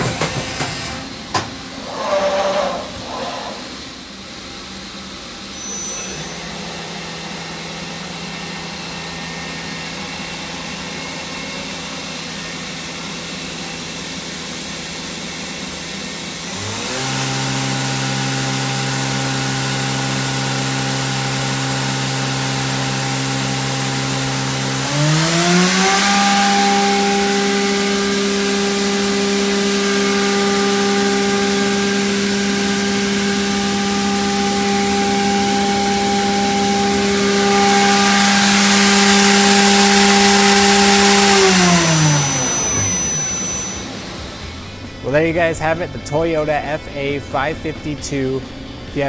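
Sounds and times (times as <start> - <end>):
machine spindle whining: 0.0 - 15.2, 16.4 - 49.0.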